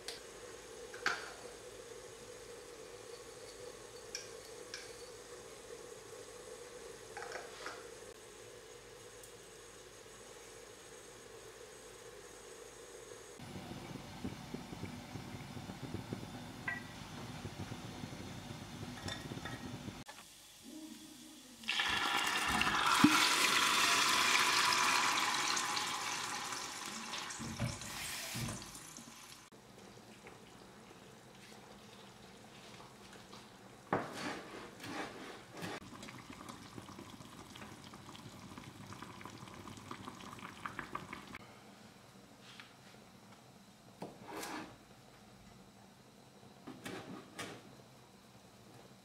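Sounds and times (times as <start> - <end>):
food sizzling in a pan: 14.0 - 29.5.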